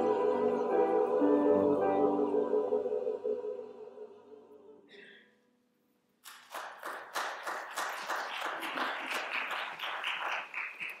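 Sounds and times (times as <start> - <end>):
applause: 6.2 - 11.0.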